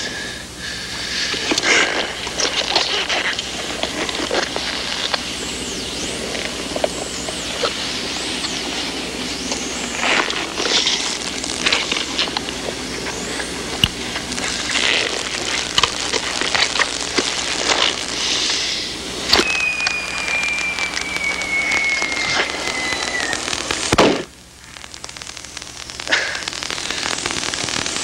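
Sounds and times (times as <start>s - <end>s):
film crackle and hiss: 0.0s - 28.0s
clicks and pops: 19.3s - 28.0s
thin tone sliding downward: 19.4s - 23.8s.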